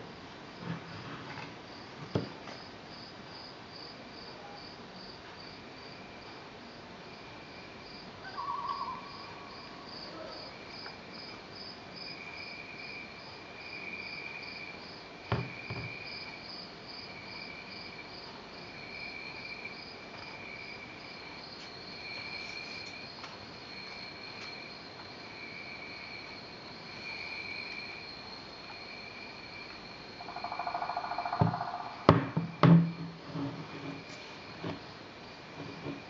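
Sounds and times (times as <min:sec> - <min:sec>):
recorded cricket chirping: 0:00.0 - 0:36.0
insect trill: 0:02.6 - 0:36.0
lamp knocks: 0:15.3 - 0:15.9, 0:31.4 - 0:33.1.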